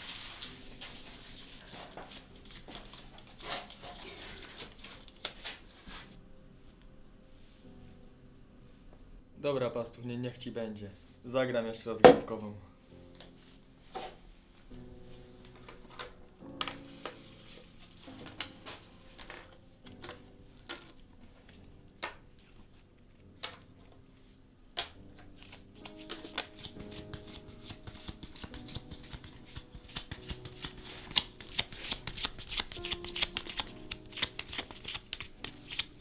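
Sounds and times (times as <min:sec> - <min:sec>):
playing cards being shuffled: 0:01.6 - 0:06.0, 0:24.8 - 0:36.0.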